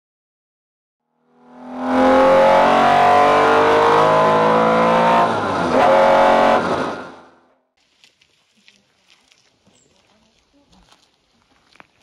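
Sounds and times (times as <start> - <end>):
car engine accelerating: 1.3 - 7.4.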